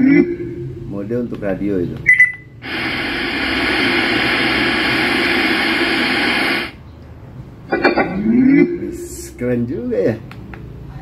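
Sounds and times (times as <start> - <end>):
radio static hiss: 2.6 - 6.8.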